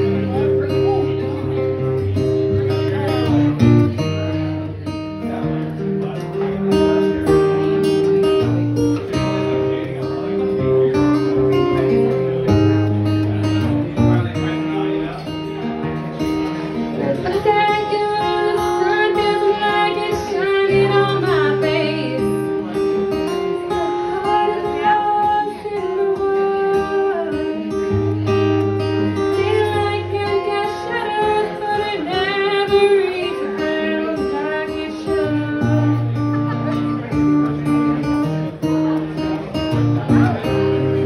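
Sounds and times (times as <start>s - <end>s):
strummed acoustic guitar: 0.0s - 41.0s
woman singing: 17.2s - 22.6s, 24.1s - 28.0s, 29.3s - 36.0s.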